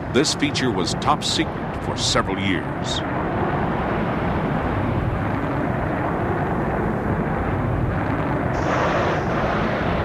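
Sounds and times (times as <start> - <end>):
jet engines running: 0.0 - 10.0.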